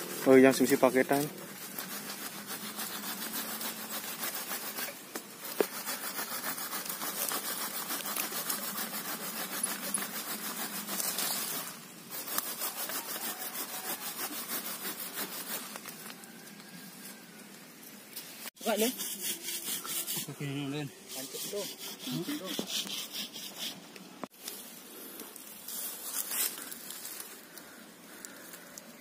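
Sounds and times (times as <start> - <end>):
hand tool rasping stems: 0.0 - 16.2, 18.6 - 20.3, 21.1 - 23.8.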